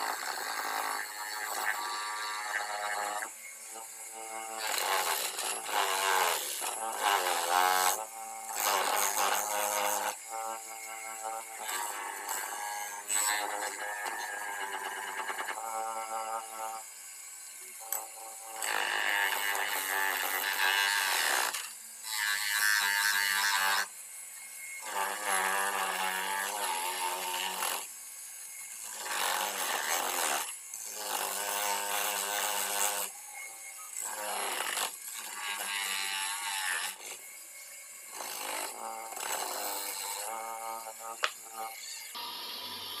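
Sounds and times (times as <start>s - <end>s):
bench grinder grinding metal: 0.0s - 43.0s.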